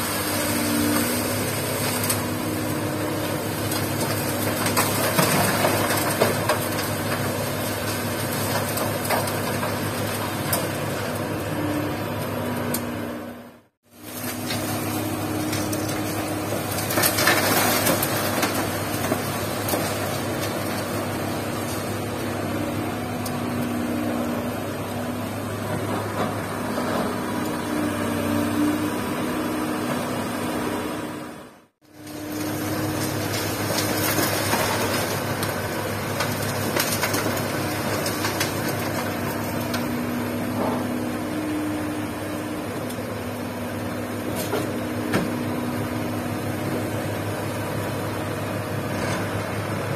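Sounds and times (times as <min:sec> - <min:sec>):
gravel tipped into steel truck bed: 0:00.0 - 0:12.7, 0:13.9 - 0:27.4, 0:31.9 - 0:41.3
excavator diesel engine under load: 0:00.0 - 0:49.9.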